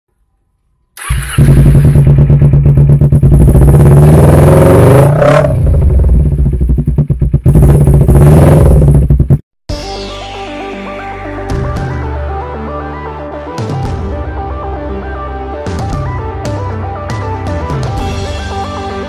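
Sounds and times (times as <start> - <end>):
motorcycle engine revving: 1.0 - 9.4.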